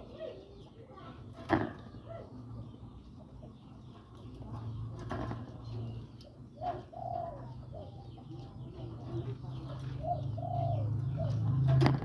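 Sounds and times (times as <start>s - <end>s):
dove cooing: 5.6s - 12.0s.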